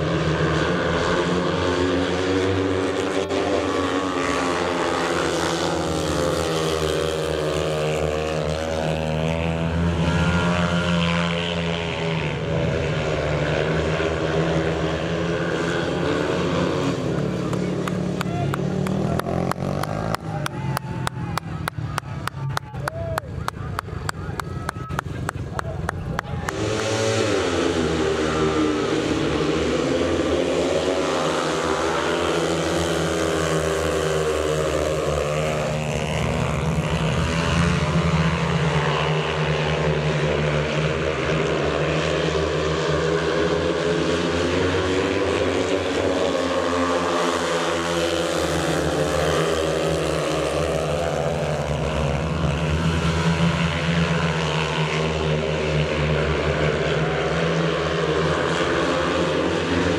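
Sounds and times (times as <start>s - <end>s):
motorcycle engines racing: 0.0s - 59.9s.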